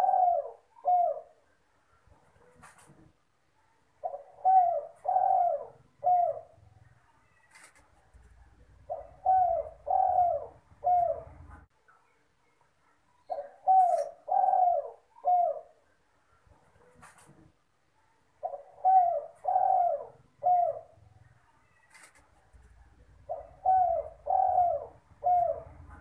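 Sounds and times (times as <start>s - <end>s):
dove cooing: 0.0s - 1.5s, 4.0s - 6.7s, 8.6s - 11.7s, 13.3s - 15.9s, 18.4s - 21.1s, 21.7s - 26.0s.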